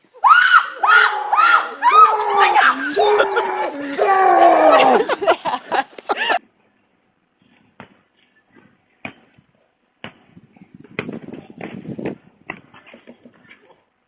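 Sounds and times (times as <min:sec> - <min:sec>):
excited shouting: 0:00.2 - 0:05.2.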